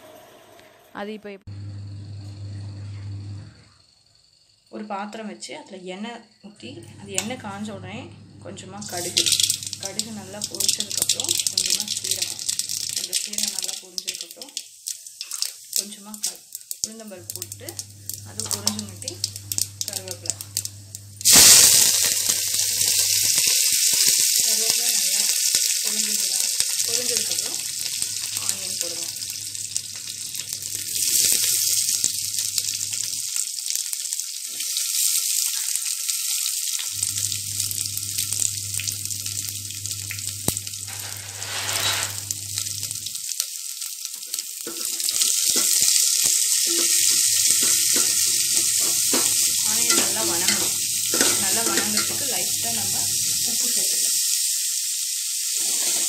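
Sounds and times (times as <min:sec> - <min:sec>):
onions sizzling in hot oil: 0:08.5 - 0:56.0
ladle stirring onions: 0:08.9 - 0:24.4, 0:26.4 - 0:53.6.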